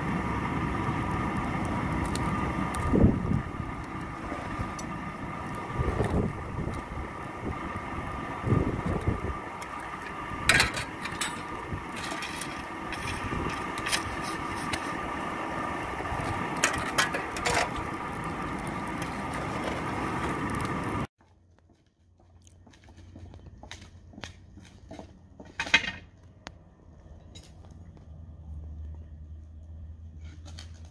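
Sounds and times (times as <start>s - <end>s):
forge fire roaring: 0.0s - 21.1s.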